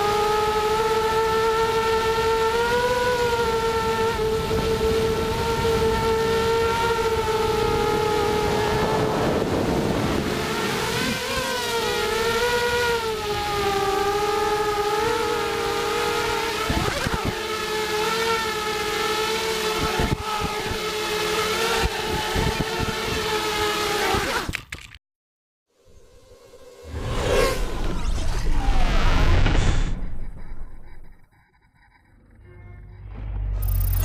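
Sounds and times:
quadcopter motors whining: 0.0s - 24.6s, 25.8s - 34.0s
wind on microphone: 4.4s - 11.4s, 19.8s - 20.8s, 21.8s - 23.2s.

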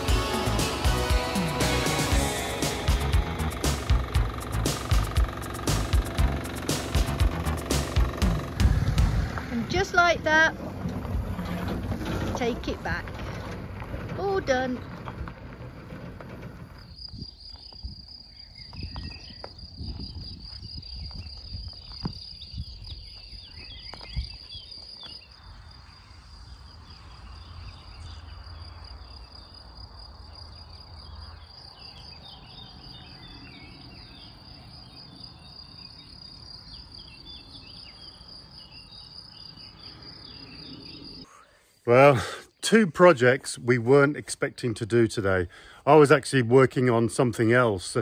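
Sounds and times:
crickets chirping: 0.0s - 42.6s, 44.4s - 48.0s
low rumble: 2.9s - 14.2s.

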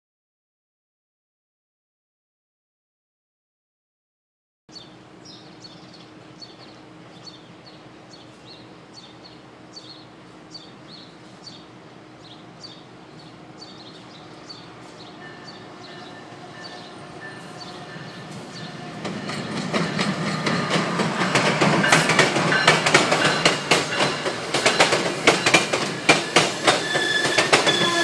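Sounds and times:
bird chirping: 4.7s - 20.6s
train humming and rumbling: 4.8s - 28.0s.

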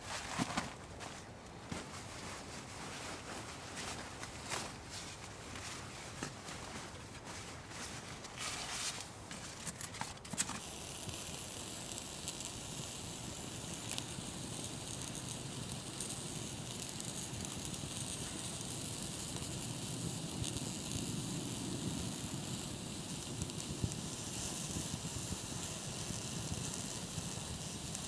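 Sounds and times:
sleeping bag fabric rustling: 0.0s - 9.6s
wood fire hissing and crackling: 0.0s - 28.0s.

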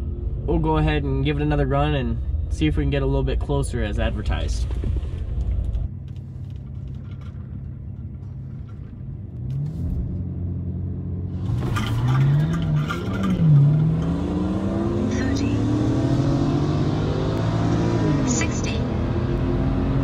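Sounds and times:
car engine revving and accelerating: 9.3s - 20.0s.

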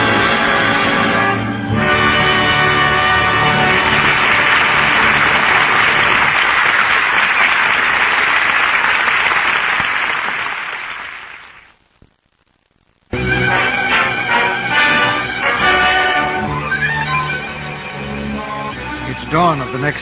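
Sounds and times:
orchestra closing music: 0.0s - 6.9s, 13.2s - 20.0s
audience applauding: 2.2s - 11.7s.

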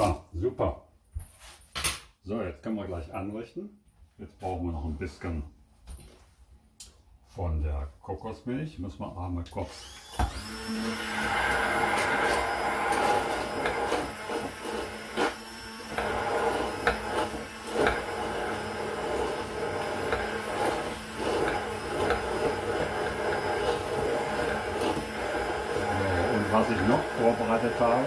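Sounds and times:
immersion blender motor hum: 9.7s - 28.0s.

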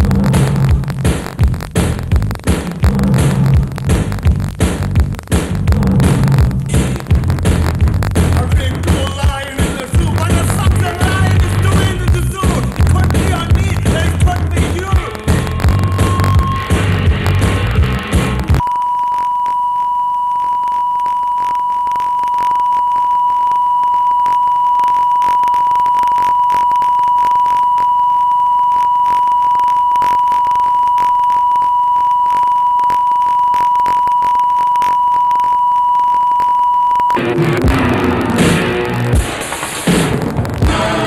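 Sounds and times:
faint crackle: 0.0s - 41.0s
high electronic test tone: 15.1s - 17.7s.

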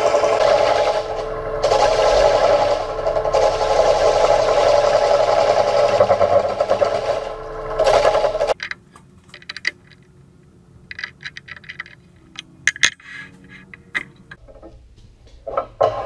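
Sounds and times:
lathe tool scraping wood: 0.0s - 8.6s
chuck key clicking and rattling: 8.6s - 10.2s, 10.8s - 13.0s.

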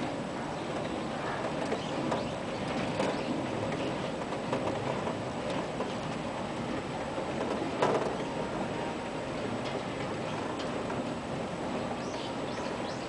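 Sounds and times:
ride car rumbling on track: 0.0s - 13.0s
irregular clicks and clacks: 0.8s - 8.3s.

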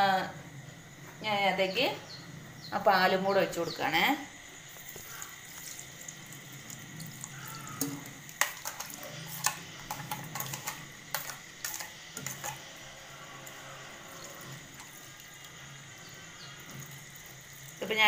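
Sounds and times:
milk pouring: 4.6s - 18.0s.

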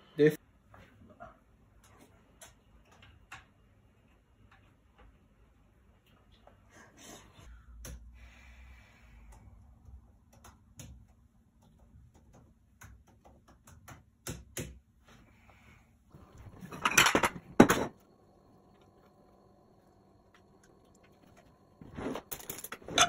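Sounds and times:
clattering and rustling: 21.8s - 23.0s.

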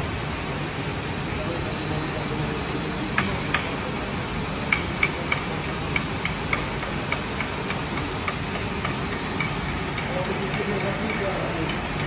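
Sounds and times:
industrial hall background noise: 0.0s - 12.0s
sharp irregular clicks: 4.7s - 12.0s.

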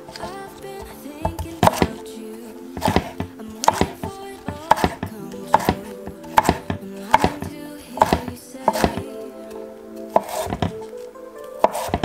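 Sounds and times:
knife chopping on wooden board: 0.1s - 2.0s, 2.8s - 9.1s, 10.1s - 10.8s, 11.6s - 12.0s.

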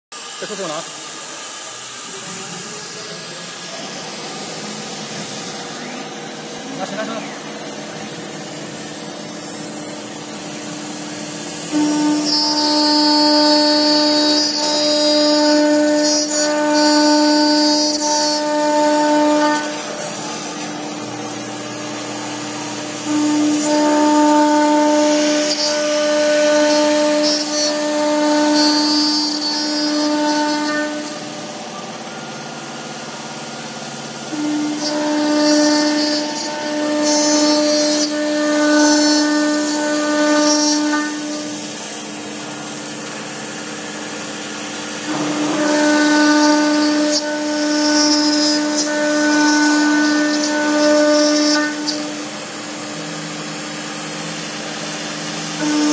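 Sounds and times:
bit cutting metal hissing: 0.2s - 55.9s
router spindle high whine: 0.2s - 55.9s.

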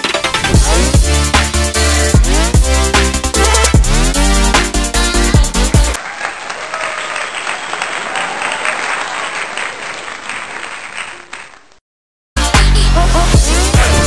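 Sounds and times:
electronic background music: 0.0s - 6.0s, 12.4s - 14.0s
crowd applause: 6.0s - 11.8s.

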